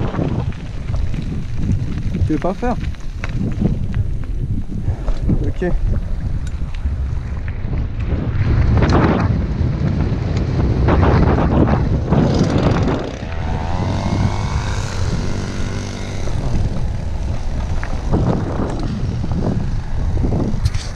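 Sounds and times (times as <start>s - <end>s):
tyres on gravel: 0.0s - 9.1s, 12.1s - 20.9s
wind buffeting microphone: 0.0s - 20.9s
pitched whine: 12.1s - 20.9s.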